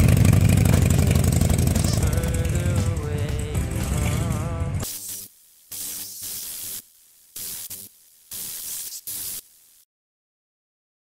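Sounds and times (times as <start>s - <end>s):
static hiss bursts: 4.8s - 9.9s.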